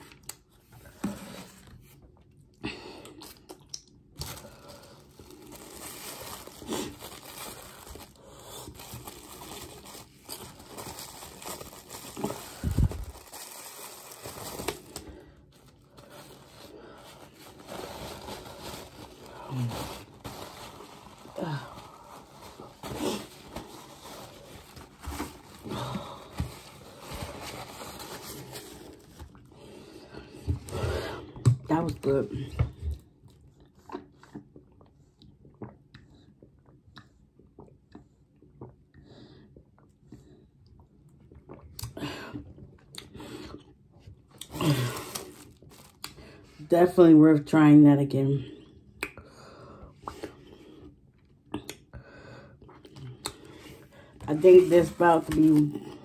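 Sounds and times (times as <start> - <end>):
paper and plastic wrap rustling: 4.2 - 29.4, 44.6 - 46.7, 54.2 - 55.8
plastic crinkling: 4.2 - 29.5, 44.4 - 46.5, 54.2 - 56.0
soft breaths or hums: 4.2 - 31.4, 48.4 - 54.3.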